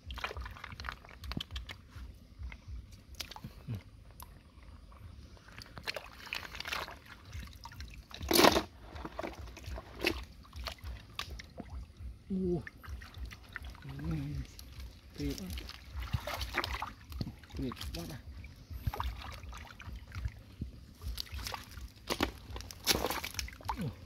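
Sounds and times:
stream water splashing: 0:00.0 - 0:02.0, 0:04.2 - 0:24.0
water trickling off hands: 0:09.2 - 0:24.0.

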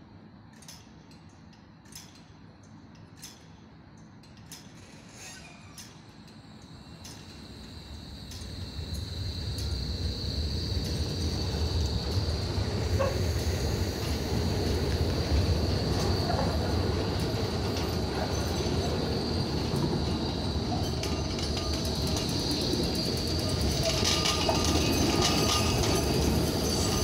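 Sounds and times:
electric tram rumbling past: 0:06.7 - 0:27.0.

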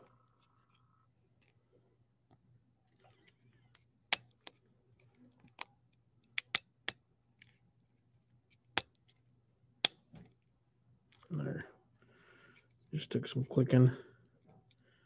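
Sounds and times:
plastic clicks and snaps: 0:02.3 - 0:07.6.

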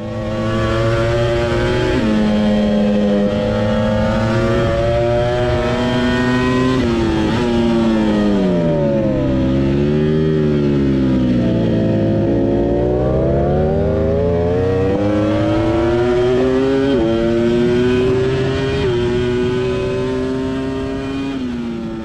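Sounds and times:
motorcycle engine accelerating hard: 0:00.0 - 0:22.0.

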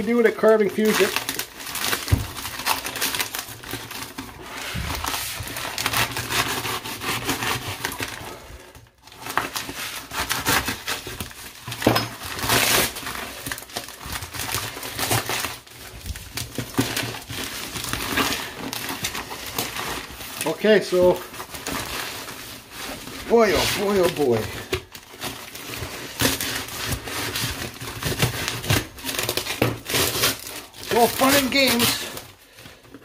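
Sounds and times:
packing tape and cardboard ripping: 0:00.0 - 0:33.0.

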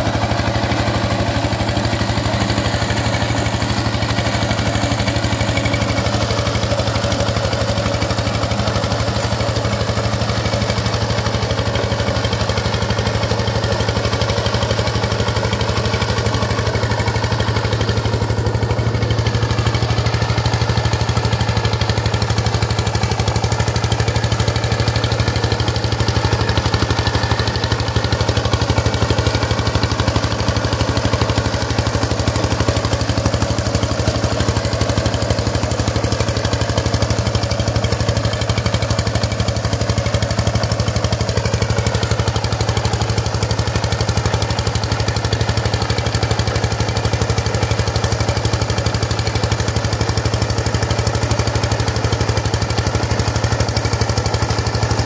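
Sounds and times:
diesel tiller engine running: 0:00.0 - 0:55.0.

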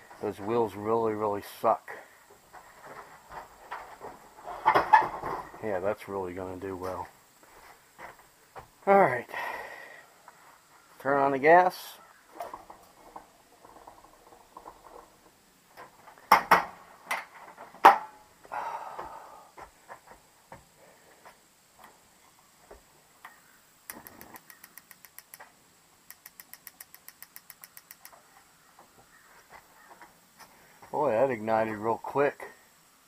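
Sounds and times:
electronic igniter clicking rapidly: 0:23.9 - 0:25.4, 0:26.0 - 0:28.2.

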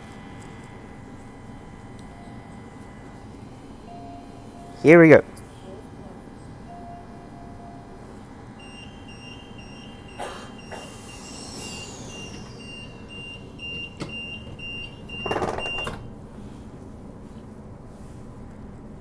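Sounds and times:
door-closing warning beeps: 0:03.9 - 0:04.9, 0:06.7 - 0:07.9, 0:08.6 - 0:16.1
sliding doors shutting: 0:08.6 - 0:16.2.

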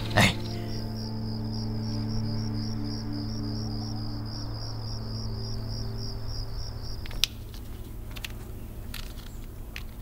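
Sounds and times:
cricket chirping: 0:00.0 - 0:10.0
low steady hum: 0:00.0 - 0:10.0.

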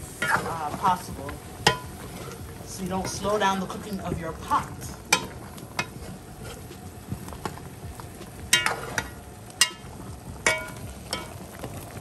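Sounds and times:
stew sizzling: 0:00.0 - 0:12.0
metal spoon clinking on pot: 0:08.5 - 0:09.8, 0:10.4 - 0:11.3.

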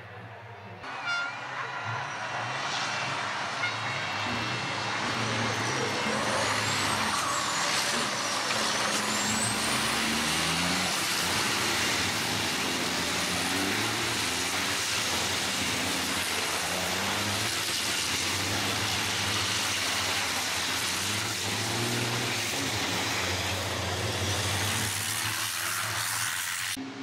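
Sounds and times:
truck diesel engines racing: 0:00.0 - 0:27.0
high whistle: 0:00.9 - 0:02.6.

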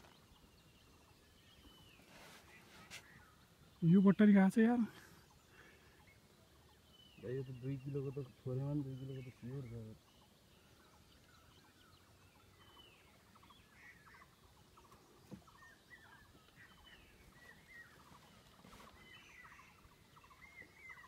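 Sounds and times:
distant birds chirping: 0:00.0 - 0:21.0.

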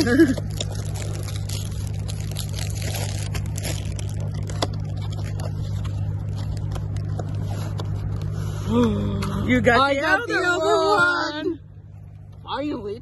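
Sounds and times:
foil wrapper crinkling: 0:00.0 - 0:08.3
steady low hum: 0:00.0 - 0:13.0.

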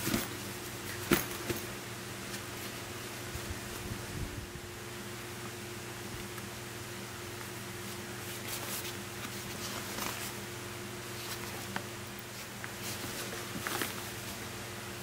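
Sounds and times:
steady low hum: 0:00.0 - 0:15.0
fabric backpack rustling: 0:11.1 - 0:14.5.

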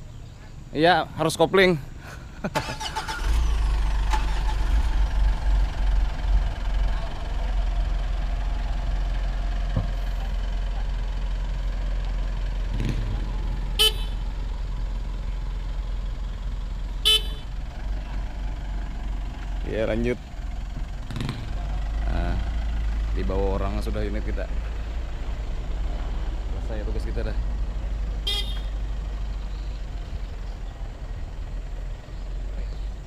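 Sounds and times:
pickup engine idling: 0:01.6 - 0:33.0
car horn toots: 0:13.7 - 0:14.3, 0:17.0 - 0:17.5, 0:28.2 - 0:28.8.

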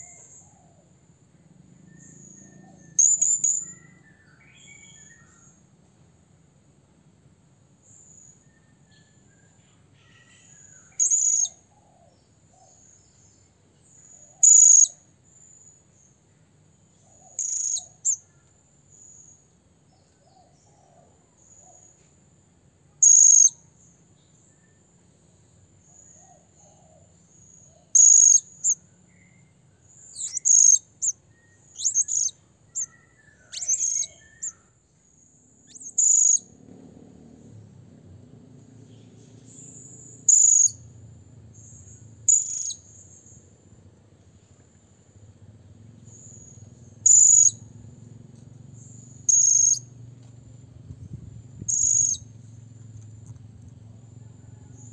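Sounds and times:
faint insect trill: 0:00.0 - 0:54.9
parrot shrill calls: 0:30.2 - 0:31.2, 0:31.8 - 0:34.6.

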